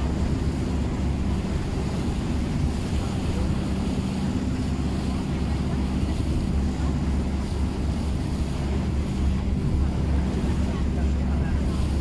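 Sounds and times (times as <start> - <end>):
boat engine drone: 0.0 - 12.0
sea washing past: 0.0 - 12.0
wind buffeting microphone: 0.0 - 12.0.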